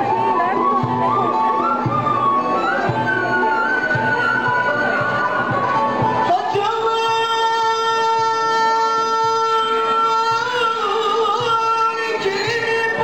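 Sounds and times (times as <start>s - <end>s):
small ensemble accompanying: 0.0s - 13.0s
man singing a long high note: 6.3s - 13.0s.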